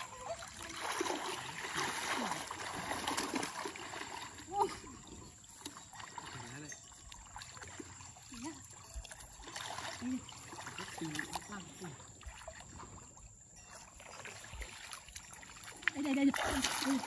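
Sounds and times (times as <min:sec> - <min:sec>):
water sloshing and splashing: 0:00.0 - 0:17.0.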